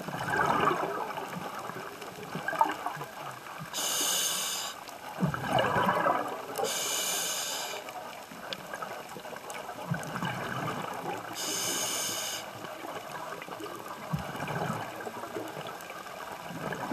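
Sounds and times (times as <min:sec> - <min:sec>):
exhaled bubbles rumbling: 0:00.0 - 0:03.8, 0:05.0 - 0:06.7, 0:08.3 - 0:11.4, 0:12.6 - 0:16.9
regulator hissing inhales: 0:03.8 - 0:04.8, 0:06.6 - 0:07.9, 0:11.4 - 0:12.6.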